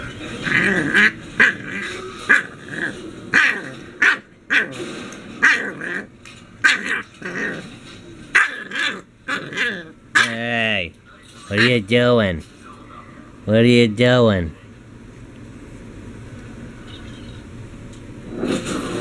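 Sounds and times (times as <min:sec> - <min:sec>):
puppy growling: 0:00.2 - 0:10.5, 0:18.2 - 0:19.0
puppy yapping: 0:00.4 - 0:04.8, 0:05.4 - 0:07.7, 0:08.3 - 0:10.4.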